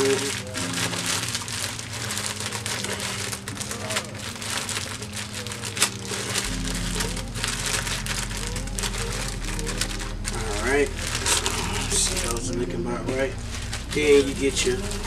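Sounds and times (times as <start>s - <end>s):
cookie cracking: 0.0s - 15.0s
plastic bag crinkling: 0.0s - 15.0s
background music with bass: 6.1s - 15.0s.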